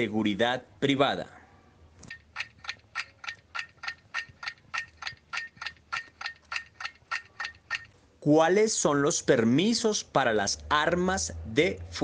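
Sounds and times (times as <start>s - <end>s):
fast clock ticks: 2.1s - 7.9s.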